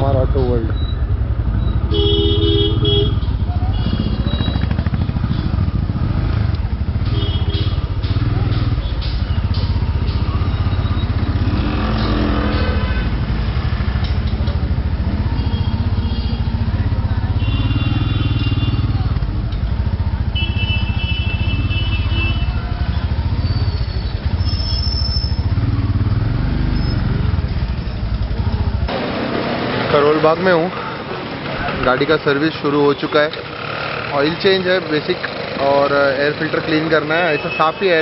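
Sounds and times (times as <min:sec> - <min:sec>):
motorcycle engine running: 0:00.0 - 0:30.1, 0:33.4 - 0:37.1
vehicle horns honking: 0:01.8 - 0:05.6, 0:07.0 - 0:08.3, 0:11.1 - 0:13.3, 0:15.3 - 0:16.6, 0:17.3 - 0:19.2, 0:20.3 - 0:25.5, 0:37.1 - 0:38.0.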